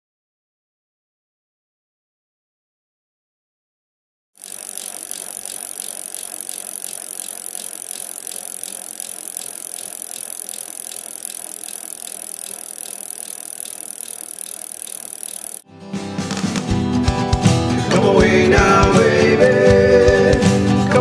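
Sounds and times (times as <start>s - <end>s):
mechanical ticking and rattling: 4.4s - 15.6s.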